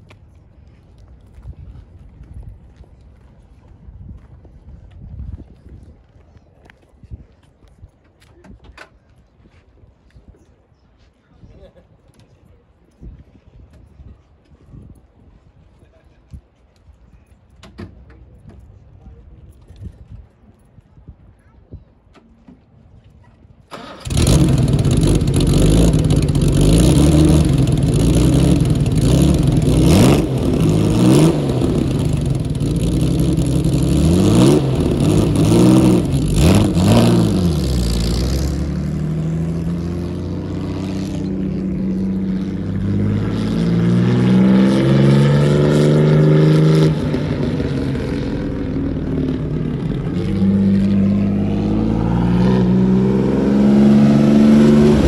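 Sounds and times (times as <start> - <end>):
racing car engine revving: 24.1 - 55.0.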